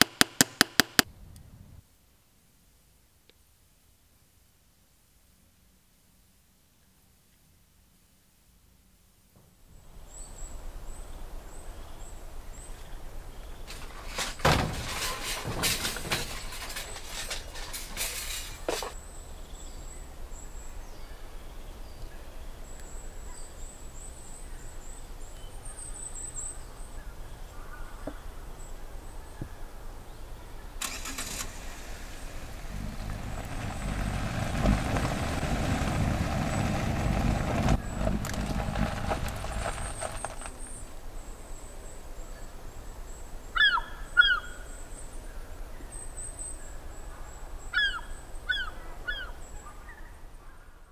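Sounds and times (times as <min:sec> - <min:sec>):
car engine starting and running: 0:30.8 - 0:40.4.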